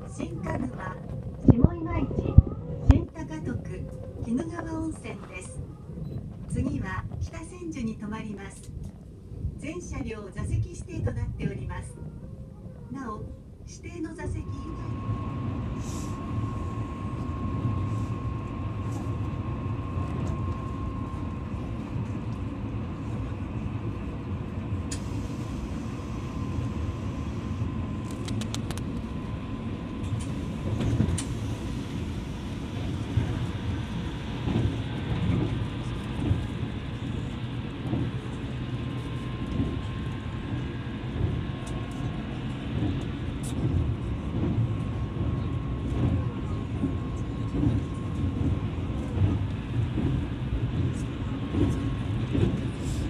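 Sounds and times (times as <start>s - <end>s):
train wheels rumbling on rails: 14.3s - 53.0s.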